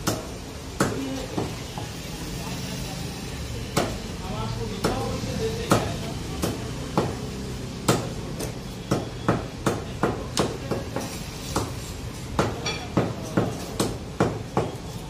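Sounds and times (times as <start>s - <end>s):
knife chopping on wooden block: 7.9s - 11.8s, 12.4s - 14.8s.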